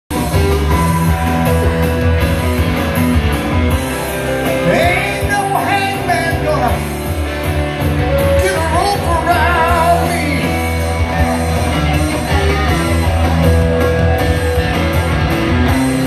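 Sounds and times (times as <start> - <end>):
electric guitar through amplifier: 0.1 - 16.0
man singing: 4.5 - 6.9, 8.2 - 11.3.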